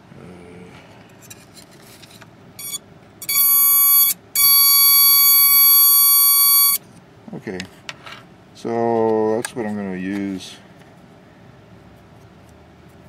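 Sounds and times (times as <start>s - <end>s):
high buzzy tone: 2.6s - 6.8s
scratchy probe contacts: 2.6s - 6.8s.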